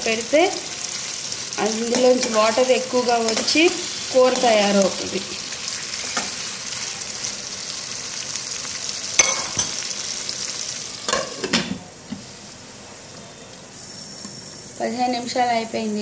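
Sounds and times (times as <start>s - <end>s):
chicken sizzling in oil: 0.0s - 11.5s.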